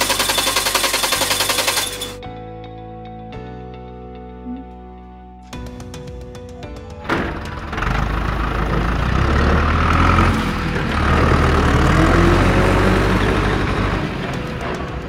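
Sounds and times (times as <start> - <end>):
diesel truck engine rumbling: 6.6 - 15.0.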